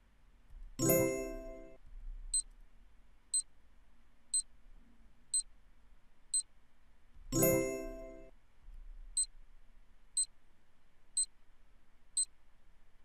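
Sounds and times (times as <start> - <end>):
bright chime: 0.8 - 1.8, 7.4 - 8.3.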